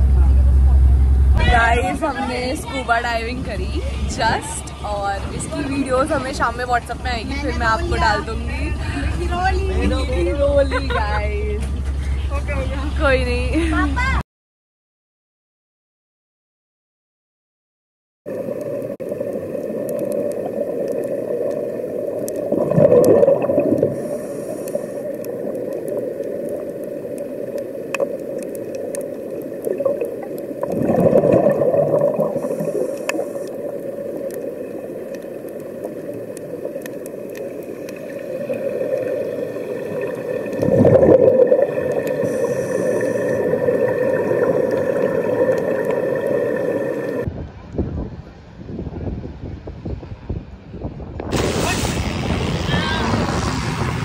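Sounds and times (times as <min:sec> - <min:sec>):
underwater bubbling and gurgling: 0:18.3 - 0:47.3.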